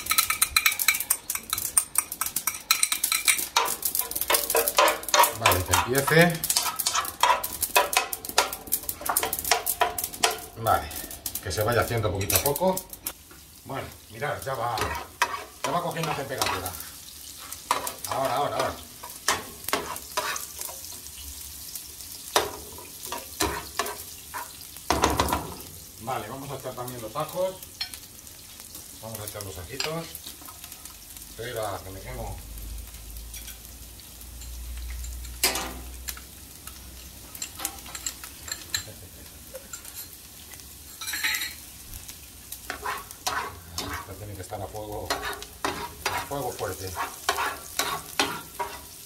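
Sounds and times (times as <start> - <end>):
metal spoon scraping a pan: 0.0 - 11.1, 14.4 - 21.1, 22.3 - 25.2, 34.4 - 36.0, 36.6 - 38.9, 39.5 - 40.2, 40.8 - 41.7, 42.6 - 49.0
onion sizzling in hot oil: 0.0 - 49.0.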